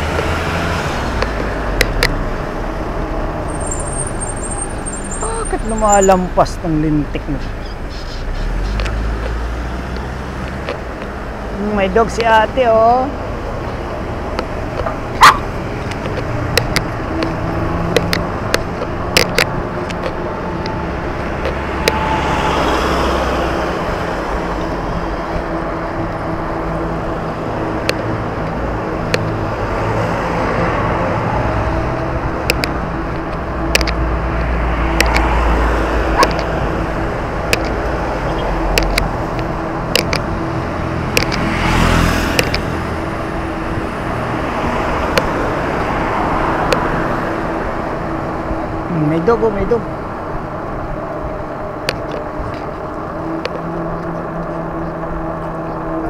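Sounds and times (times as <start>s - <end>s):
passing vehicles rumble: 0.0s - 56.0s
sharp clicks and knocks: 1.2s - 2.2s, 14.3s - 22.1s, 27.8s - 29.4s, 32.4s - 34.0s, 34.9s - 35.3s, 36.2s - 36.6s, 37.4s - 38.0s, 38.6s - 40.4s, 41.1s - 41.5s, 42.3s - 42.7s
bicycle riding noise: 12.8s - 56.0s.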